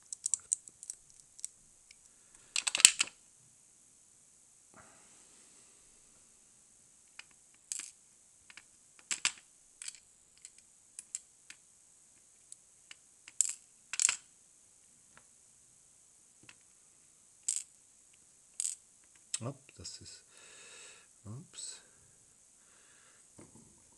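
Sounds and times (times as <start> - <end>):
small metal parts clicking: 0.0 - 3.2, 7.2 - 11.6, 12.4 - 14.3, 17.4 - 17.8, 18.6 - 19.3.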